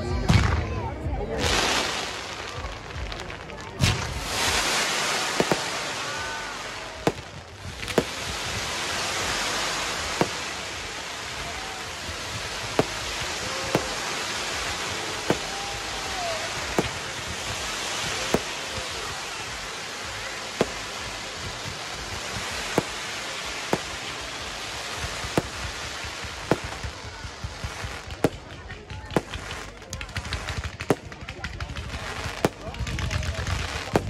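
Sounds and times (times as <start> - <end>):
fireworks crackling hiss: 0.0 - 34.0
fireworks sharp bangs: 1.3 - 34.0.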